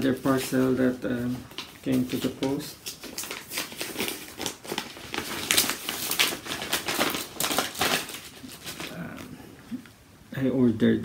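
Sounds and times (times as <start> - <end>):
paper crumpling: 0.0 - 9.4.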